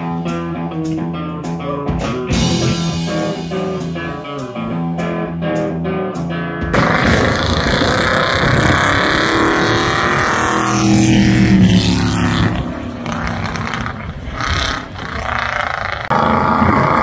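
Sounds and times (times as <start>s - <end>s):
racing car engine at full throttle: 6.7s - 17.0s.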